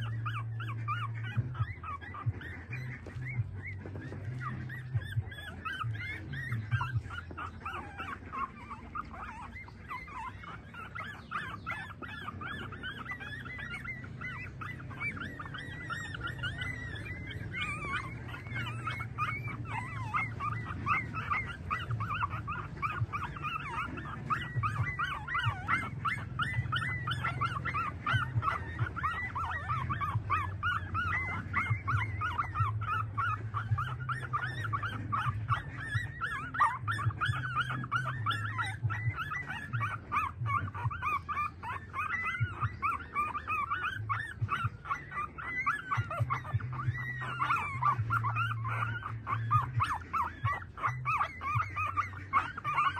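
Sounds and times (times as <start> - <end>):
puppies squeaking and whimpering: 0.0 - 52.9.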